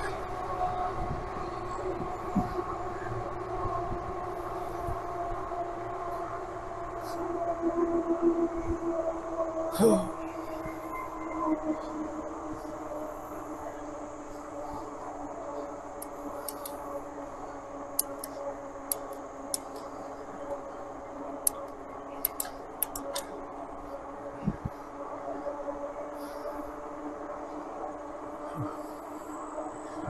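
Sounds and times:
bike clicks and ticks: 15.7 - 20.7, 21.4 - 23.4.

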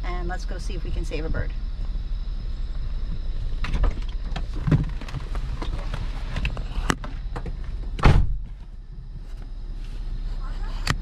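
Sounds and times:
car door shutting: 3.6 - 8.7.

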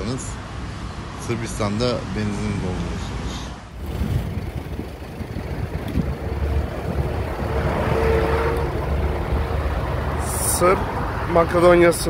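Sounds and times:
vehicle rumble on road: 2.8 - 12.0
wind noise on microphone: 3.8 - 10.0.

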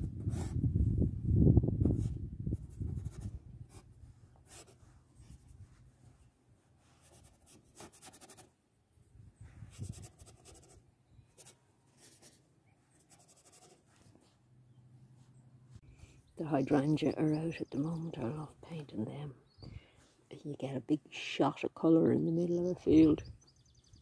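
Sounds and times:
paintbrush scraping strokes: 1.9 - 8.5, 9.4 - 14.5.

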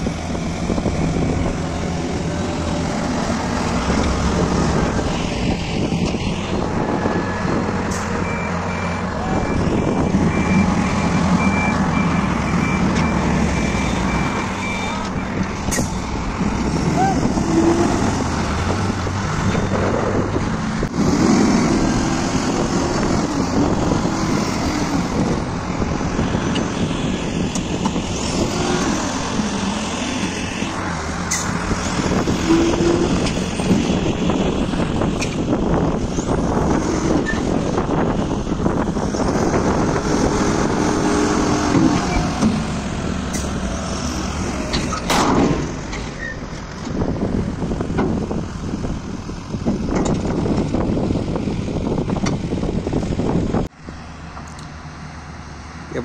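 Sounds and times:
diesel truck engine running: 0.0 - 56.0
reversing beeper: 8.2 - 15.4.

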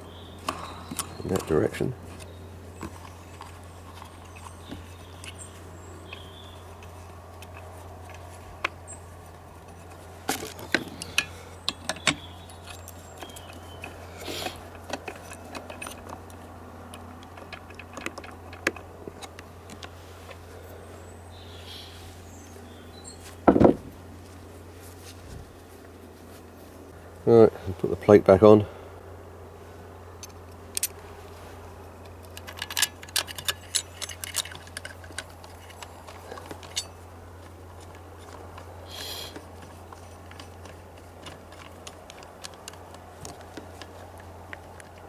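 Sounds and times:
steady low hum: 0.0 - 45.0
metallic clinks of tools: 32.3 - 37.0.

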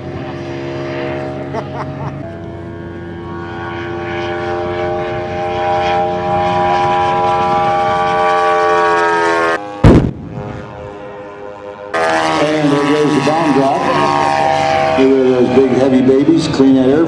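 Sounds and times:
model airplane engine running: 0.0 - 17.0
loud bang: 9.8 - 10.6.

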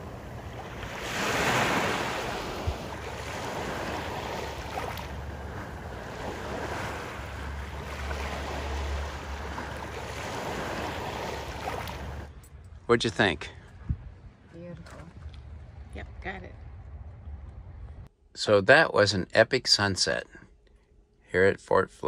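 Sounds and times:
waves lapping on a beach: 0.0 - 12.3
wind rumble on microphone: 2.1 - 4.0, 13.7 - 18.1.

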